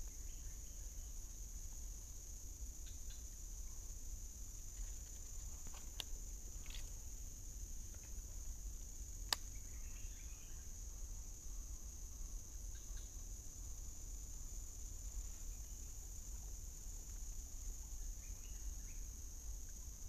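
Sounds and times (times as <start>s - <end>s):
forest insects droning: 0.0s - 20.0s
sharp click: 9.3s - 9.5s.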